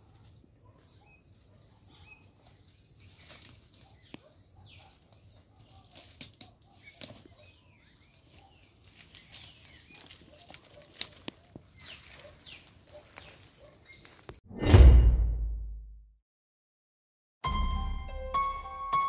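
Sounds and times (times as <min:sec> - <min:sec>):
footsteps crunching through dry leaves: 0:02.2 - 0:04.1, 0:07.9 - 0:14.3.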